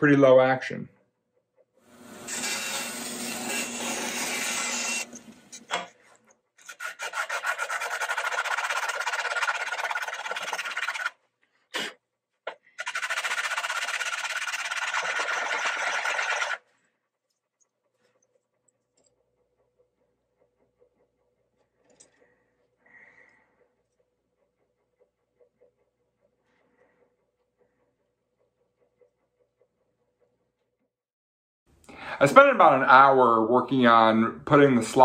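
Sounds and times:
bone being rasped or sanded: 6.6s - 11.2s, 12.8s - 16.6s.

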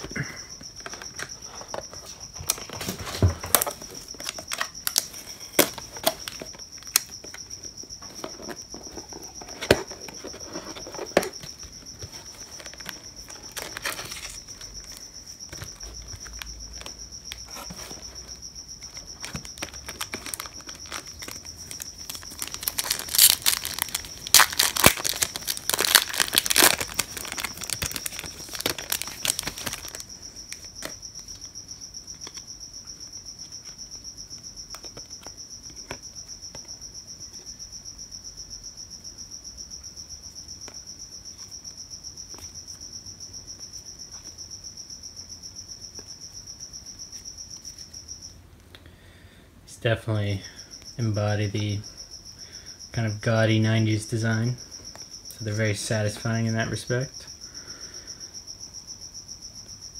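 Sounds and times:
cricket chirping: 0.0s - 59.9s
foil pack crinkling and tearing: 12.6s - 14.4s, 19.2s - 30.1s
cardboard box clicks and rustles: 19.2s - 30.0s.

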